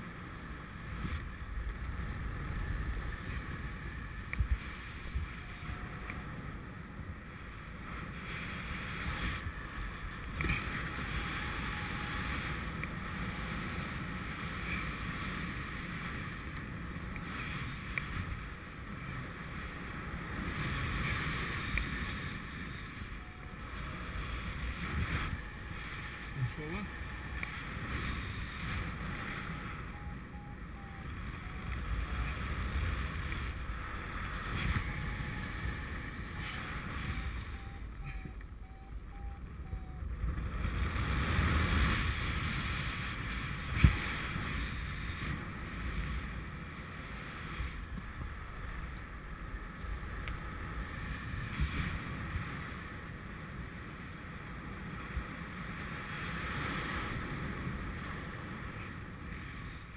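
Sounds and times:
wind noise on microphone: 0.0 - 59.9
faint quick beeps: 37.1 - 40.0.

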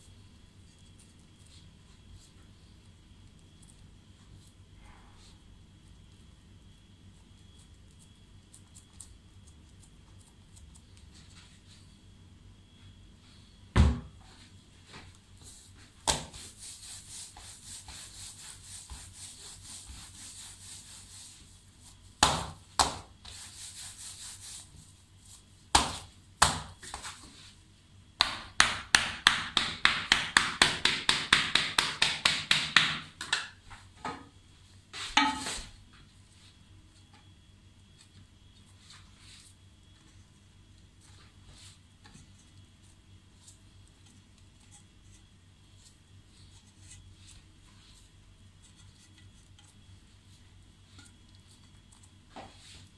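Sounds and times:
hands rolling dough on marble: 14.9 - 27.6, 28.2 - 33.8, 37.9 - 52.9
knife strikes on marble: 35.2 - 35.5.

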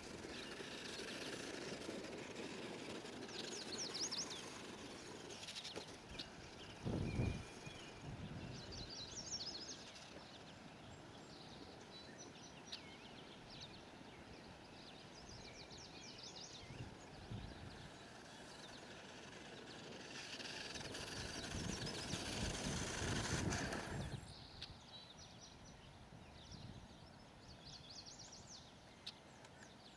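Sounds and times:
electric toy truck whirring: 0.0 - 8.9, 16.9 - 24.2
faint low wind rumble: 20.8 - 27.9.

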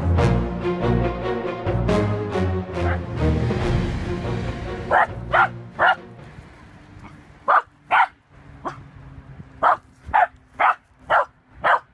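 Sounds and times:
dog barking: 4.9 - 6.0, 7.5 - 8.8, 9.6 - 11.9.

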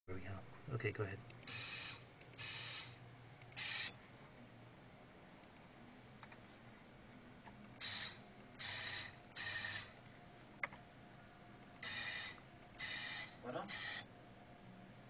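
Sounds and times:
stepper motor whining: 1.5 - 2.9.

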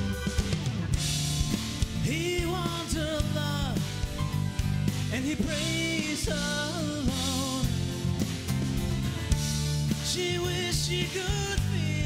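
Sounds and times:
acoustic guitars playing: 0.0 - 12.0
person singing wordless melody: 2.0 - 4.1, 4.9 - 8.0, 9.9 - 12.0.

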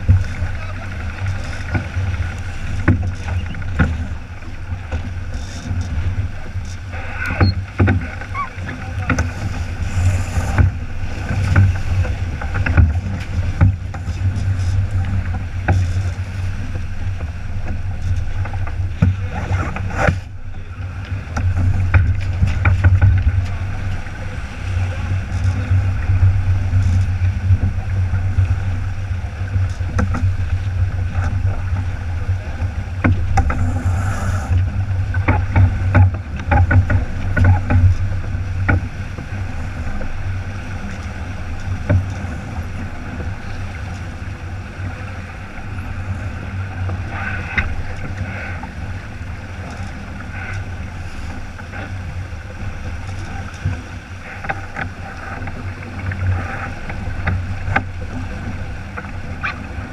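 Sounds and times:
knocks and splashes: 0.0 - 33.8, 34.5 - 44.2
water rushing along a hull: 0.0 - 59.9
wind buffeting the microphone: 0.0 - 59.9.

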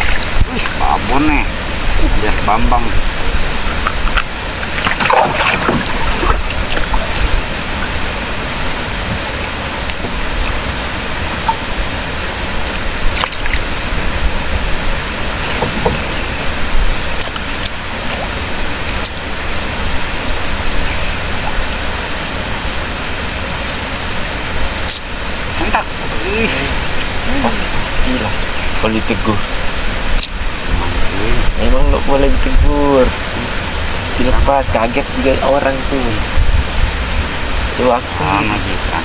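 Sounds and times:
high-pitched whine: 0.0 - 39.0
outdoor rumble and hiss: 0.0 - 39.0.

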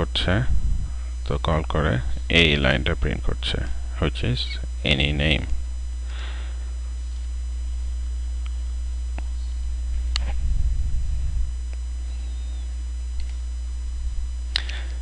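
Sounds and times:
electrical mains hum: 0.0 - 15.0
low rumble: 0.1 - 2.4, 5.4 - 15.0
faint clicks: 13.2 - 13.4, 14.5 - 14.9.

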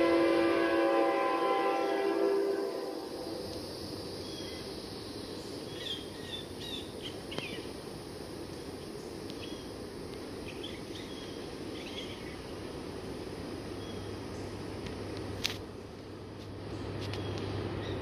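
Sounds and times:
low outdoor background hum: 0.0 - 18.0
small birds chirping: 4.2 - 7.7, 8.9 - 9.7, 10.4 - 12.6
faint click: 7.3 - 7.5.

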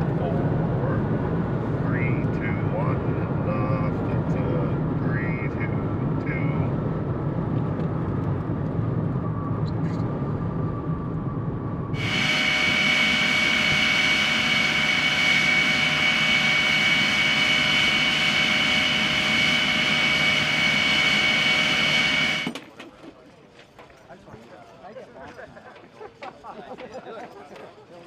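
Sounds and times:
low vehicle rumble: 0.0 - 22.4
high-pitched jet turbine whine: 8.4 - 22.6.

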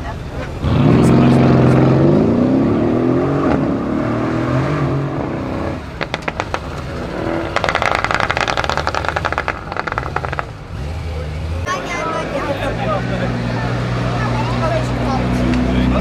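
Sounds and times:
car engine accelerating hard: 0.5 - 16.0
exhaust pops and crackles: 5.9 - 10.7.

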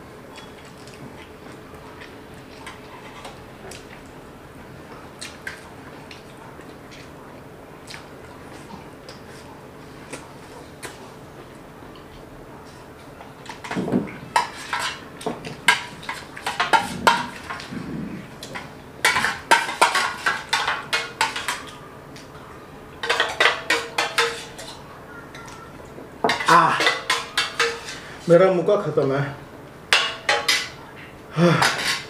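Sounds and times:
spoons clinking on steel plates: 19.0 - 21.7, 23.0 - 25.4, 26.3 - 28.0, 29.9 - 30.8.

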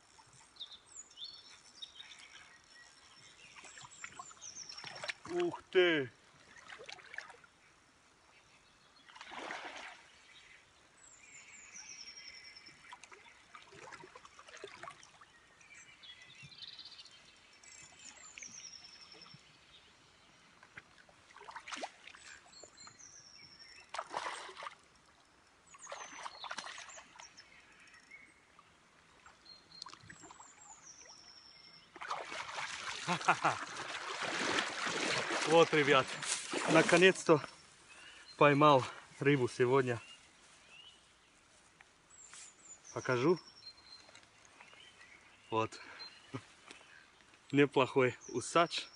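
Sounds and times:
songbird singing: 0.0 - 48.9
fish splashing in water: 9.1 - 10.1, 12.9 - 15.2, 21.2 - 22.3, 23.9 - 24.9, 25.8 - 27.3, 31.9 - 37.3.

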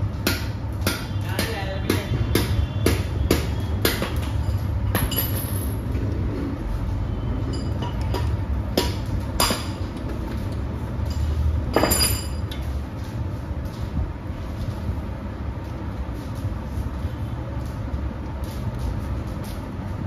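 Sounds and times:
spanner clinking on metal: 11.0 - 12.6.

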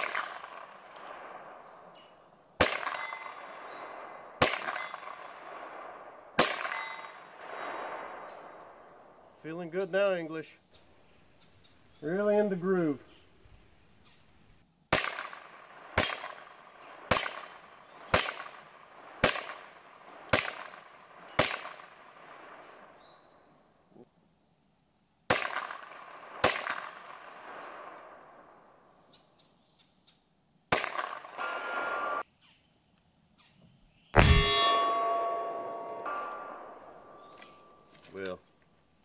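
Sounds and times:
carbine gunshots: 0.0 - 1.9, 2.6 - 8.8, 14.9 - 23.0, 25.3 - 28.4, 30.7 - 31.6.

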